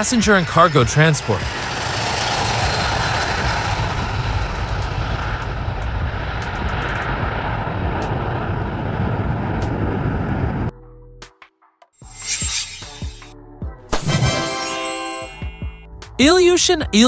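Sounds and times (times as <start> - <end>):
jet engines at takeoff: 0.0 - 10.7.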